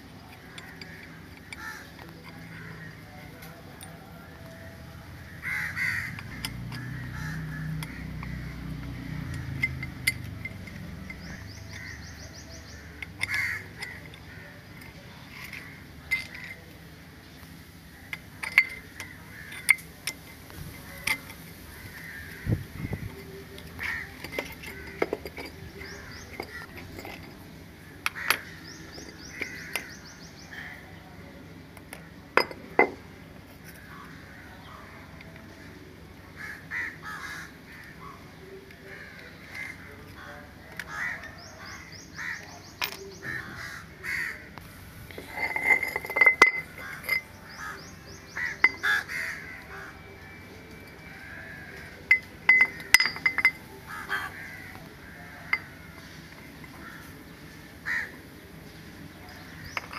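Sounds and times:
crows cawing: 0:00.5 - 0:03.0, 0:05.3 - 0:08.8, 0:11.8 - 0:14.6, 0:18.9 - 0:19.8, 0:21.0 - 0:23.2, 0:23.8 - 0:25.0, 0:27.8 - 0:30.9, 0:33.8 - 0:34.9, 0:36.4 - 0:38.1, 0:38.9 - 0:42.6, 0:43.2 - 0:44.6, 0:46.8 - 0:50.2, 0:51.0 - 0:53.0, 0:53.9 - 0:55.9, 0:56.7 - 0:58.2
metal tool clinking and tapping: 0:06.1 - 0:07.0, 0:07.6 - 0:16.7, 0:18.1 - 0:21.6, 0:22.8 - 0:27.4, 0:31.8 - 0:33.0, 0:42.8 - 0:43.2, 0:45.1 - 0:47.6, 0:48.4 - 0:49.1, 0:52.0 - 0:54.0, 0:55.5 - 0:55.8, 0:59.3 - 0:59.9.

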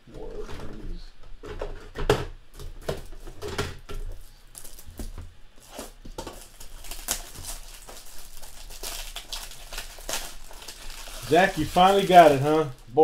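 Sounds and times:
plastic wrapper crinkling: 0:04.1 - 0:13.0.

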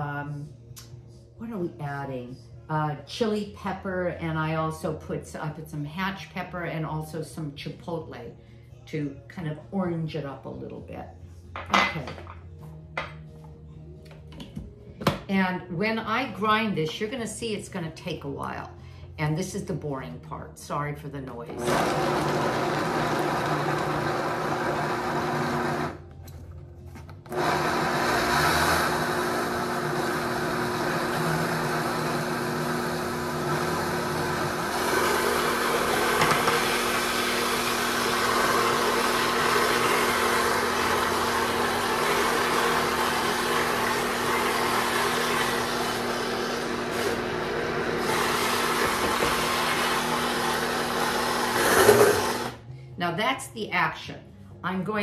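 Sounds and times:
blender grinding thick paste: 0:21.6 - 0:26.0, 0:27.3 - 0:52.6.

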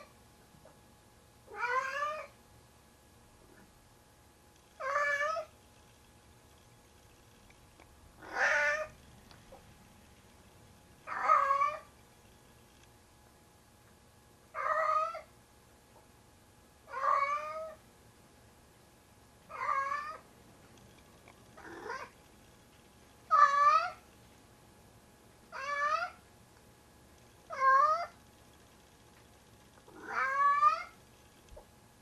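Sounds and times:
cat meowing loudly: 0:01.5 - 0:02.3, 0:08.2 - 0:08.9, 0:11.1 - 0:11.9, 0:14.6 - 0:15.3, 0:16.9 - 0:17.8, 0:23.3 - 0:24.0, 0:25.5 - 0:26.2, 0:30.0 - 0:31.0.

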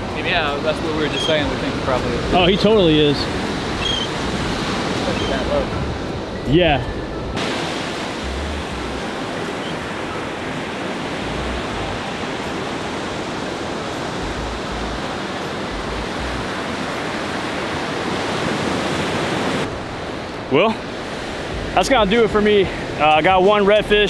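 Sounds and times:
wind buffeting microphone: 0:00.0 - 0:18.6
surf breaking on beach: 0:07.4 - 0:23.8.

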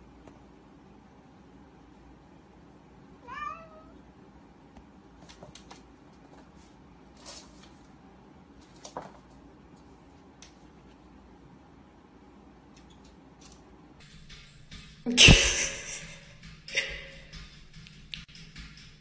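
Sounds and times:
kitten meowing: 0:03.3 - 0:03.9.

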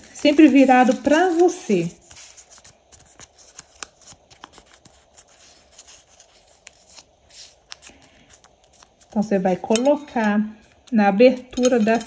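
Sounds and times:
paper rustling and crackling: 0:00.0 - 0:09.4.

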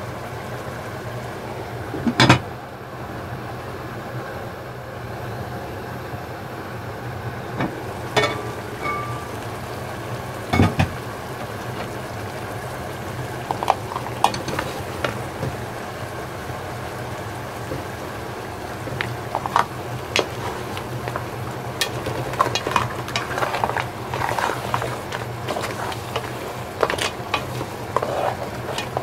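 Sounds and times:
food sizzling in a pot: 0:07.4 - 0:29.0
wooden spatula scraping a pan: 0:13.4 - 0:15.6, 0:18.8 - 0:29.0.

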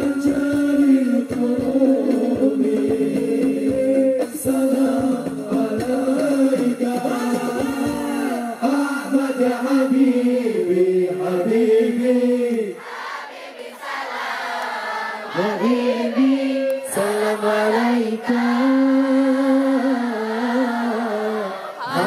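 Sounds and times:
group chanting through a pa: 0:11.4 - 0:22.0.

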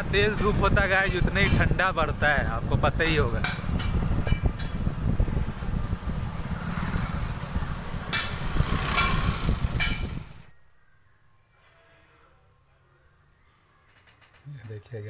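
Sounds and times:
wind buffeting microphone: 0:00.0 - 0:10.5
vehicle engine and road noise: 0:00.0 - 0:10.6.

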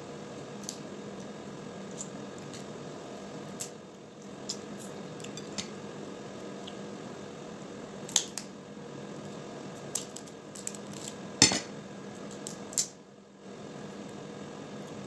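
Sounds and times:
crab shell breaking: 0:09.9 - 0:11.2
cutlery knocking on a dish: 0:11.4 - 0:11.7.

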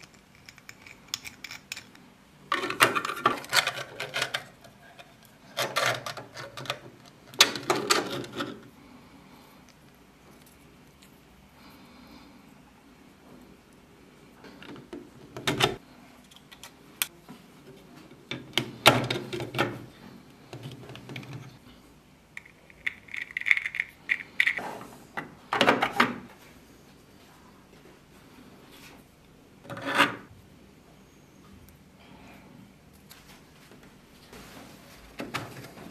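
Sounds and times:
plastic parts clicking and knocking: 0:00.0 - 0:08.6.

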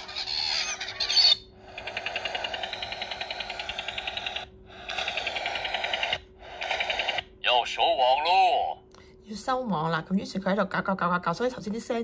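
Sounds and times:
seagulls squawking: 0:00.0 - 0:06.0.

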